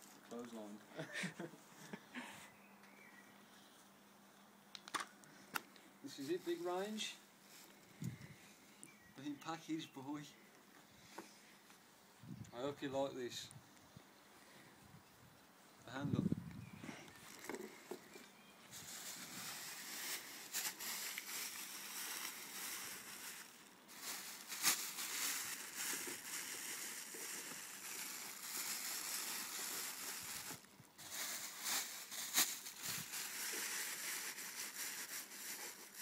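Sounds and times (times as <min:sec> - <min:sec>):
rustling handling noise: 0:16.7 - 0:36.0
steady hiss: 0:18.7 - 0:36.0.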